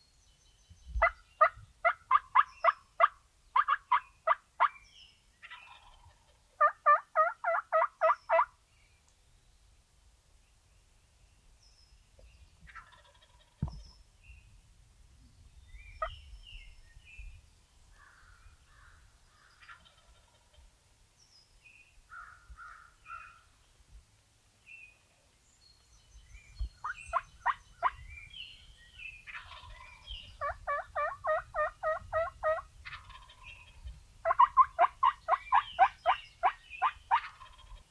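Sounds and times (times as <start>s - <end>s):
turkey yelping: 1.0s - 4.7s, 6.6s - 8.5s, 29.3s - 33.4s, 34.2s - 37.8s
faint turkey calls: 1.0s - 4.8s, 5.4s - 8.5s, 12.6s - 14.0s, 17.9s - 20.7s, 22.1s - 23.6s, 26.8s - 28.1s, 29.2s - 37.9s.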